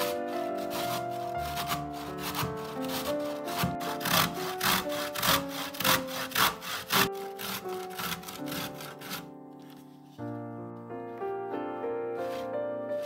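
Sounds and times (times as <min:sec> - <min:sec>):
rhythmic rasping strokes: 0:00.0 - 0:09.3
soft background music: 0:00.0 - 0:13.0.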